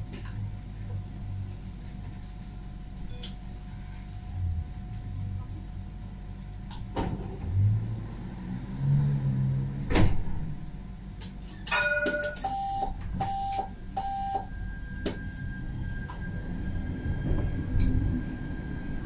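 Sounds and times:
low rumble: 4.2s - 5.9s
short beeps: 12.0s - 15.6s.

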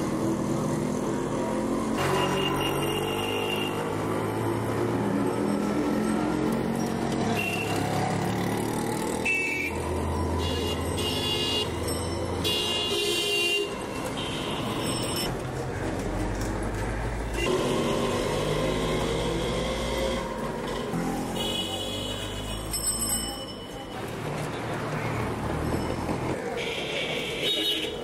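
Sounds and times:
vehicle horns tooting: 2.0s - 3.9s, 7.3s - 7.9s, 9.2s - 11.8s, 12.4s - 15.2s, 17.3s - 19.6s, 21.3s - 22.7s, 26.5s - 28.0s.

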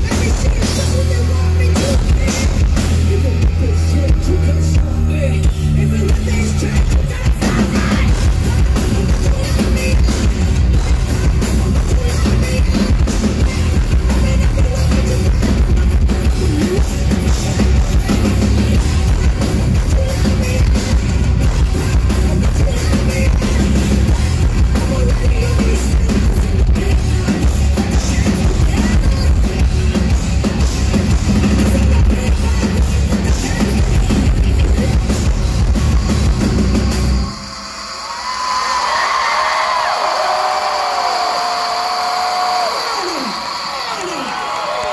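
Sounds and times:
electric guitars: 0.0s - 39.7s
pounding drum kit: 0.0s - 44.9s.

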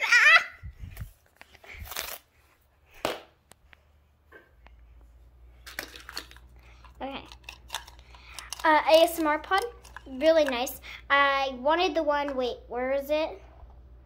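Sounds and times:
fidget toys clicking and rustling: 5.7s - 10.8s.

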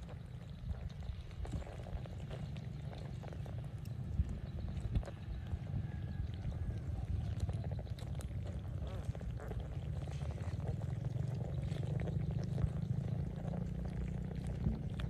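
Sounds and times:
low purring rumble: 0.0s - 15.0s.

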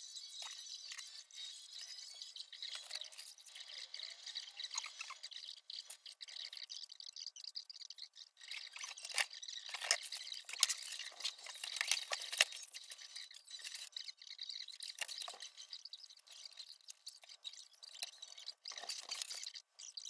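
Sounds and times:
wooden parts and paper rustling: 8.5s - 14.0s, 16.3s - 19.6s.

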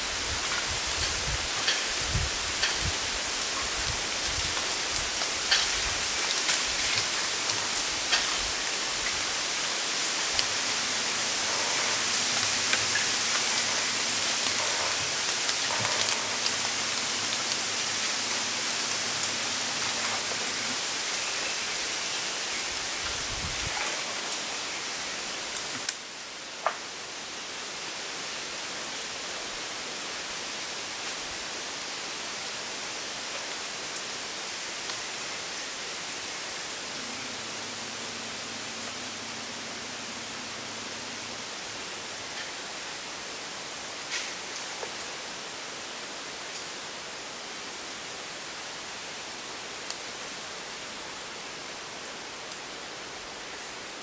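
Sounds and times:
breeze rustling bamboo leaves: 0.0s - 54.0s.

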